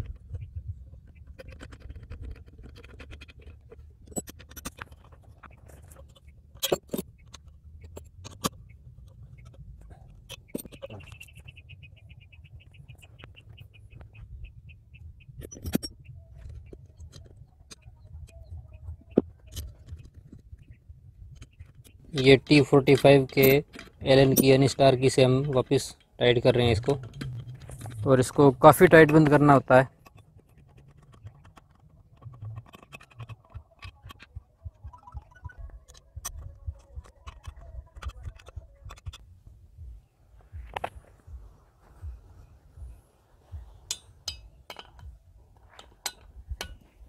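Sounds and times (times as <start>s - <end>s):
metallic clicks and knocks: 0.0s - 11.4s, 15.4s - 39.2s, 43.5s - 47.0s
metal parts handled: 1.3s - 11.2s, 21.6s - 34.3s, 43.8s - 47.0s
faint bird calls: 8.6s - 22.0s
low rumble: 26.5s - 28.7s.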